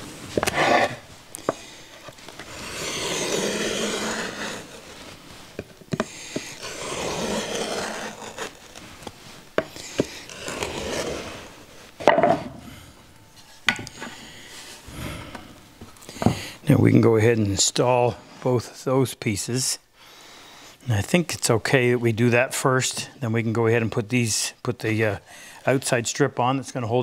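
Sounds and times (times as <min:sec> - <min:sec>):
marking gauge scraping wood: 0:00.4 - 0:05.0, 0:05.9 - 0:11.6.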